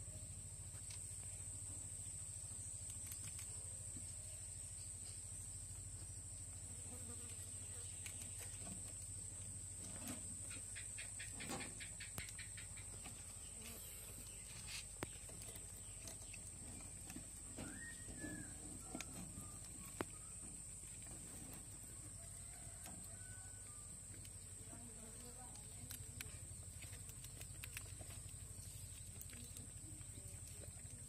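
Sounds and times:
faint clicks and scratches: 7.1 - 31.0.

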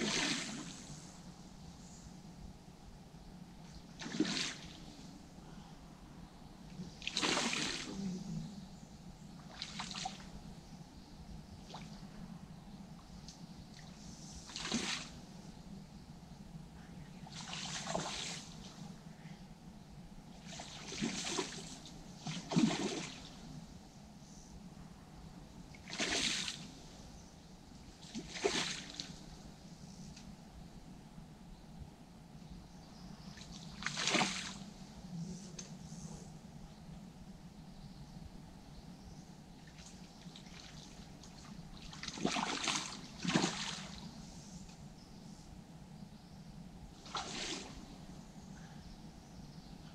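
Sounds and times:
fish splashing at water surface: 7.1 - 8.0, 22.3 - 23.2, 28.1 - 29.0.

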